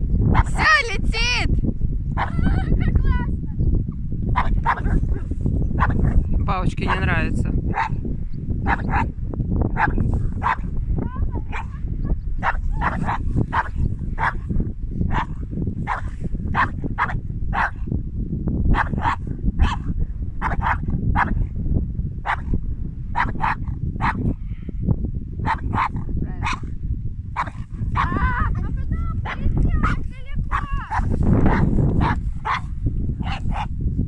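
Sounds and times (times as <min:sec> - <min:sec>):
wind rumble on microphone: 0:00.0 - 0:34.0
dog barking: 0:00.3 - 0:00.6, 0:02.2 - 0:02.4, 0:04.3 - 0:06.3, 0:07.7 - 0:08.0, 0:08.6 - 0:09.1, 0:09.7 - 0:10.7, 0:11.4 - 0:11.8, 0:12.4 - 0:17.9, 0:18.7 - 0:21.4, 0:22.2 - 0:22.5, 0:23.1 - 0:24.3, 0:25.4 - 0:26.8, 0:27.4 - 0:28.5, 0:29.2 - 0:33.7.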